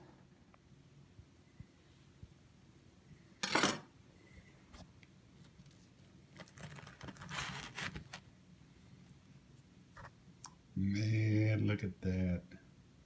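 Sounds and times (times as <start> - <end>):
bread rustling and tapping: 4.8 - 8.3.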